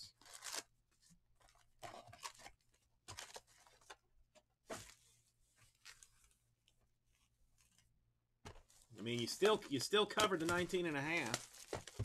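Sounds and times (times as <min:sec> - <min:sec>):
wrapper crinkling: 0:08.9 - 0:12.0.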